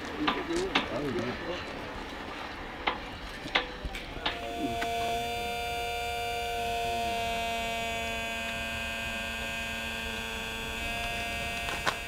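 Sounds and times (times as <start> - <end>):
small electric motor humming: 4.2 - 12.0.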